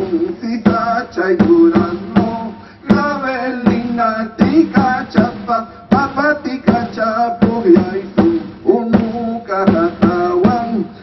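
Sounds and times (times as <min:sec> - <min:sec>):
men singing together: 0:00.0 - 0:11.0
struck drum beat: 0:00.0 - 0:11.0.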